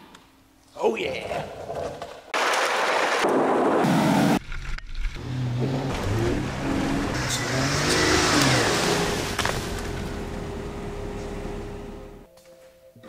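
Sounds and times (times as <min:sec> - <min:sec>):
car engine revving: 0:05.1 - 0:12.2.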